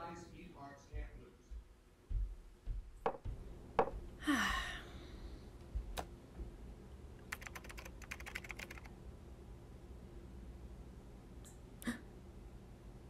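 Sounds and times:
typing on laptop keyboard: 7.2 - 8.9.

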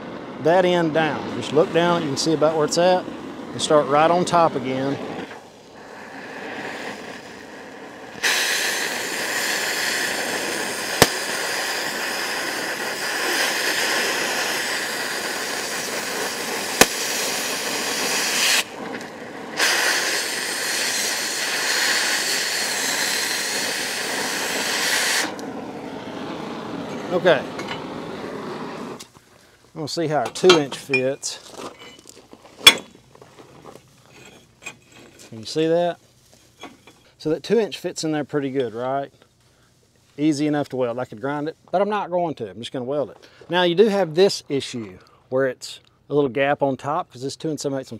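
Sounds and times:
cutting torch hissing: 0.0 - 31.9
torch preheat flame: 0.0 - 33.0
sharp pops from metal coating: 10.7 - 25.5, 32.6 - 33.0.

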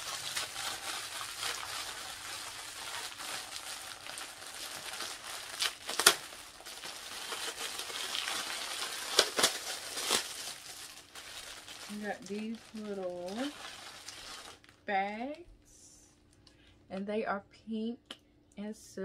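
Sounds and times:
packaging crinkling: 0.0 - 14.8.

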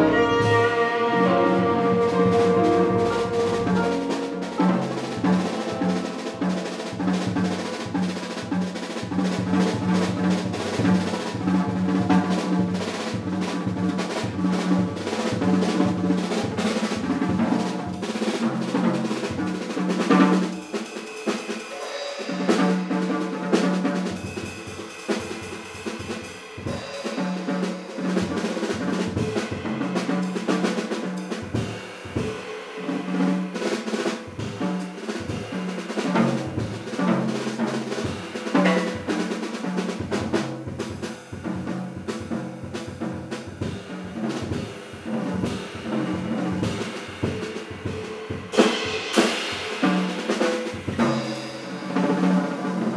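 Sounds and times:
band holding low note: 0.0 - 7.8
jazz drum solo: 0.0 - 52.9
cymbal strokes: 44.6 - 51.9.

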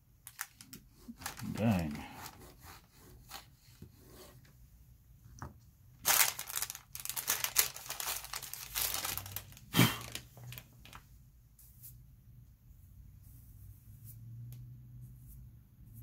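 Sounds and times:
paper rustling and crinkling: 0.2 - 3.5, 6.0 - 11.1.

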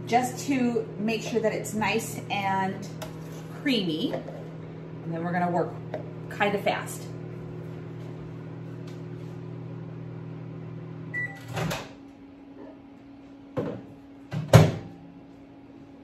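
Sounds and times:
microwave oven humming: 0.0 - 16.0
microwave beep: 11.1 - 11.7.

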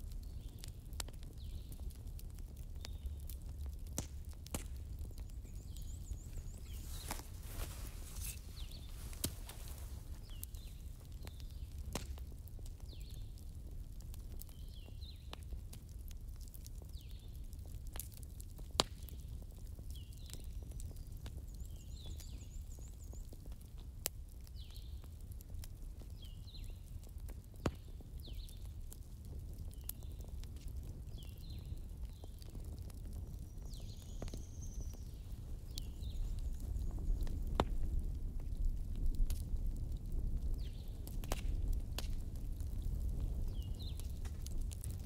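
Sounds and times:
campfire crackling and popping: 0.0 - 45.0
small bird chirping: 5.0 - 11.6.

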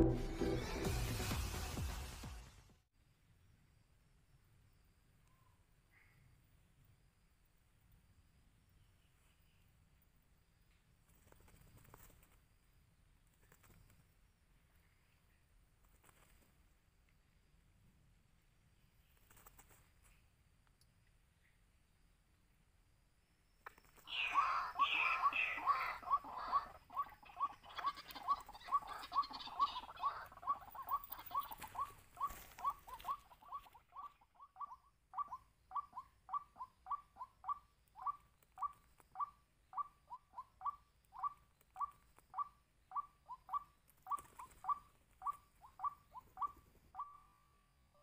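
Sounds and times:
waterhen calling: 24.0 - 47.3.

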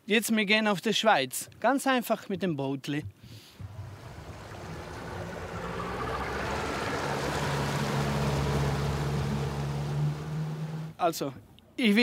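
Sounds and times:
wind: 0.0 - 12.0
motorboat engine humming: 3.6 - 11.0
rushing water: 3.6 - 11.0.

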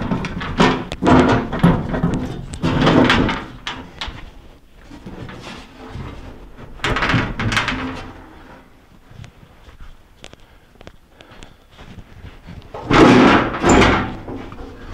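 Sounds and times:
metal rattling: 0.0 - 4.3, 12.8 - 14.9
sheet metal scraping and clunking: 0.0 - 4.3, 12.8 - 14.9.

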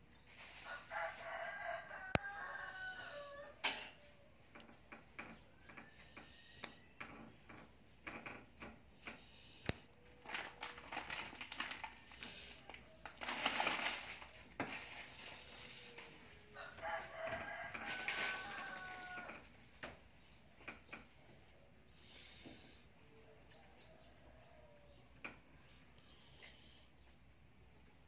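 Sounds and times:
toenail nipper clicks and snips: 6.2 - 6.8.

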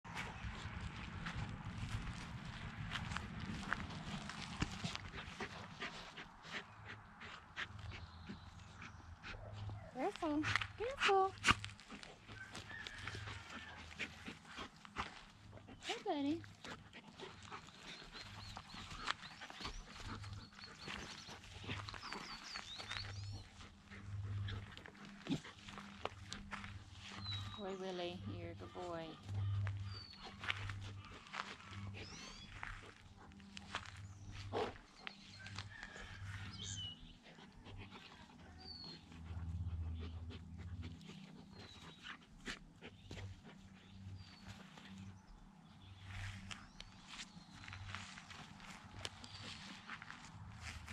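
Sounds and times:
dogs play growling: 0.1 - 10.8, 11.4 - 27.6, 28.6 - 50.9
scuffling in grass: 9.7 - 37.0, 40.9 - 50.9
dogs growling and grunting: 13.2 - 27.4, 28.6 - 35.4.

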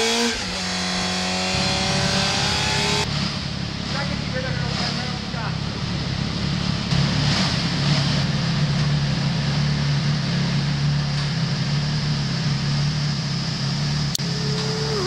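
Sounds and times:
motorcycle engine idling: 3.4 - 7.0, 8.3 - 15.0.

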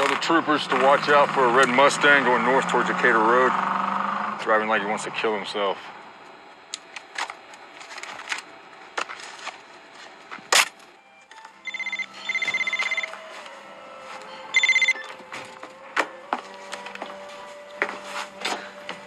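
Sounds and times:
telephone trilling ring: 11.6 - 13.2, 14.5 - 15.2.

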